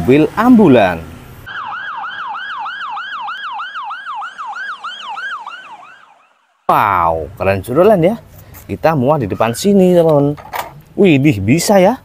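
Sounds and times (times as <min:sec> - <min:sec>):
ambulance siren yelping: 0:01.5 - 0:06.7, 0:07.6 - 0:08.2, 0:09.2 - 0:10.0.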